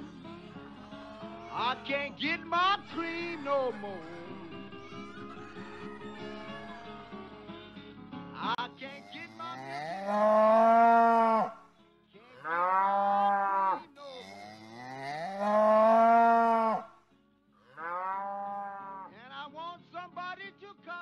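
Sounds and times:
cow mooing: 0:09.1 - 0:11.6, 0:12.3 - 0:17.0, 0:17.6 - 0:19.1.

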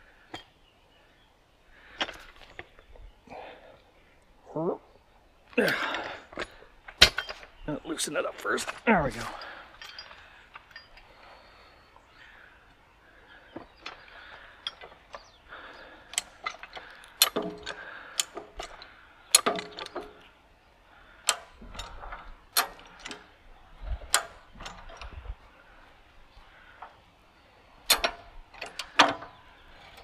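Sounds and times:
jack ratcheting clicks and clanks: 0:13.8 - 0:20.2, 0:21.2 - 0:23.3, 0:27.8 - 0:30.0.

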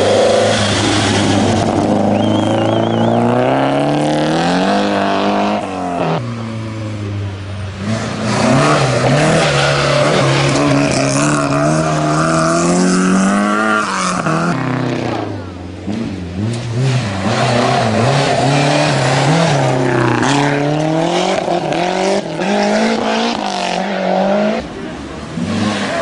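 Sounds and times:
rally car engines revving: 0:00.0 - 0:26.0.

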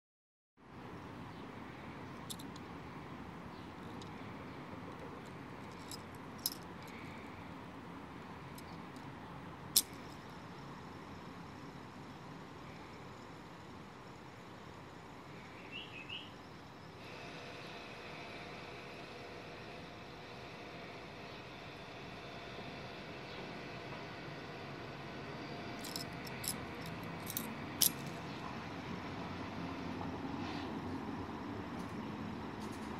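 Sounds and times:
steady low background noise: 0:00.6 - 0:17.0
metal balls clicking in spinner: 0:25.8 - 0:28.2.

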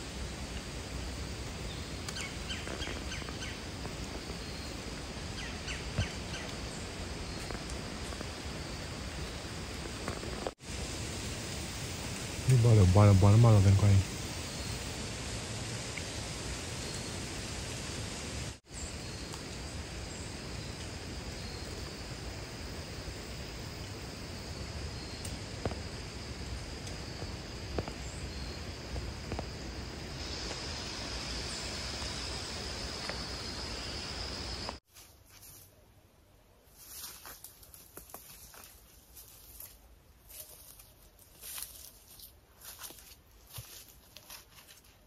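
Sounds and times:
high insect drone: 0:00.0 - 0:34.8
steady hiss: 0:00.0 - 0:35.7, 0:36.6 - 0:45.0.

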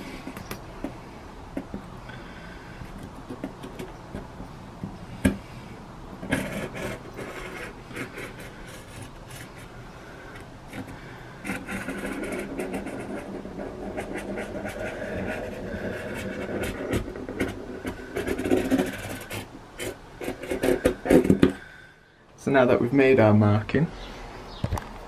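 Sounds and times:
marker scratching over cardboard: 0:06.2 - 0:21.6
cardboard rustling: 0:10.4 - 0:21.6.

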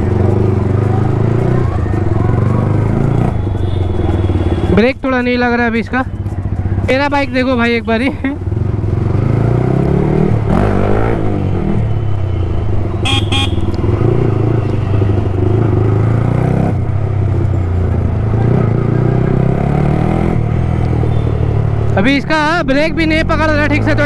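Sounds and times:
motorcycle engine running: 0:00.0 - 0:10.6, 0:12.3 - 0:21.8
vehicle horn toots: 0:03.2 - 0:04.8, 0:13.0 - 0:13.7.

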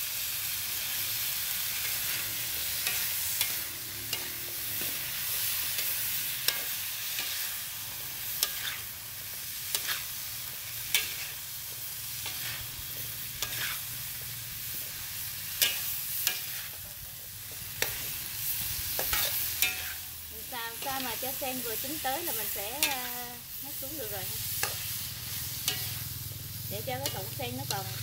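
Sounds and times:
vegetables sizzling in a wok: 0:00.0 - 0:28.0
metal spatula scraping a pan: 0:01.7 - 0:07.6, 0:08.2 - 0:09.0, 0:09.7 - 0:10.2, 0:12.1 - 0:13.9, 0:15.4 - 0:16.8, 0:17.8 - 0:20.1, 0:24.5 - 0:26.2, 0:26.8 - 0:28.0.

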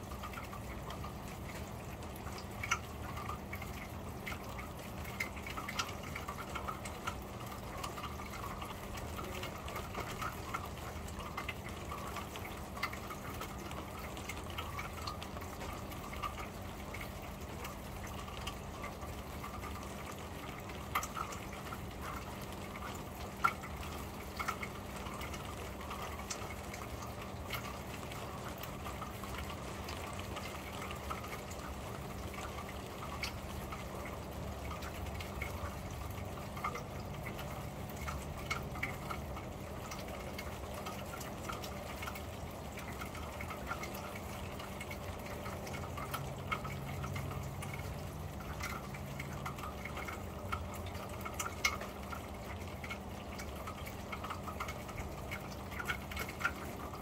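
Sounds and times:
rain on a metal roof: 0:00.0 - 0:57.0.

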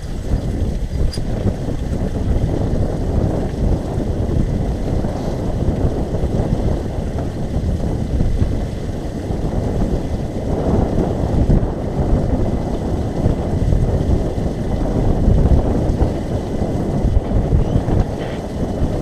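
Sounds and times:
wind buffeting microphone: 0:00.0 - 0:19.0.

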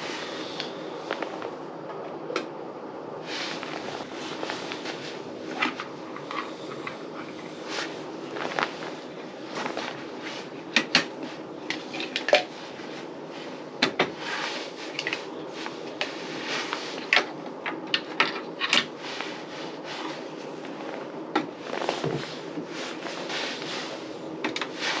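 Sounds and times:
rustling: 0:07.5 - 0:10.6.

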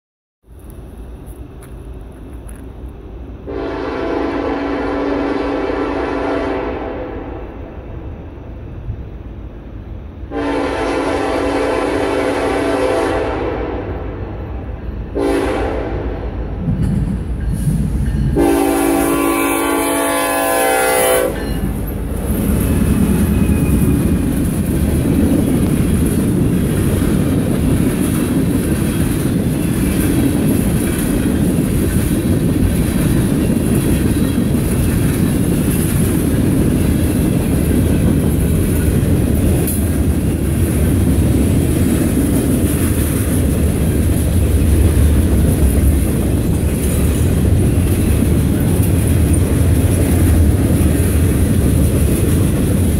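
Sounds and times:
freight train rumbling: 0:00.4 - 0:52.9
locomotive horn: 0:03.5 - 0:07.4, 0:10.3 - 0:14.2, 0:15.1 - 0:16.4, 0:18.3 - 0:21.8
wheels clacking over rail joints: 0:21.3 - 0:52.9.

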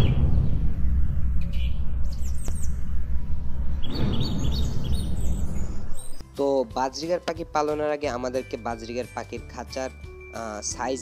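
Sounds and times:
birds chirping: 0:00.0 - 0:06.2
steady deep rumble: 0:00.0 - 0:06.2
whooshing swell: 0:00.0 - 0:06.2.

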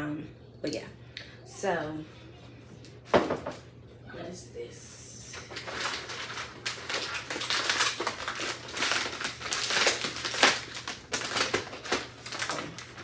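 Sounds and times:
loud paper crackle: 0:05.4 - 0:13.0
paper bag crinkling: 0:05.4 - 0:13.0.

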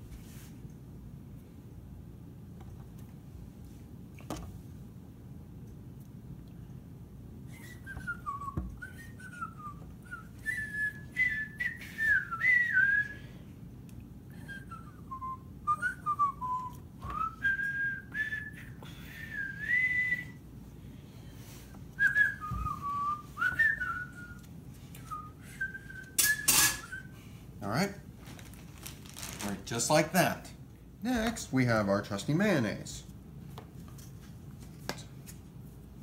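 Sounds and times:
person whistling a tune: 0:07.5 - 0:13.3, 0:14.3 - 0:20.4, 0:22.0 - 0:27.2.

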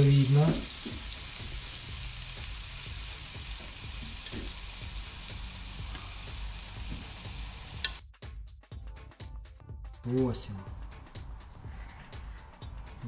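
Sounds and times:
prawns sizzling in a frying pan: 0:00.0 - 0:08.0.

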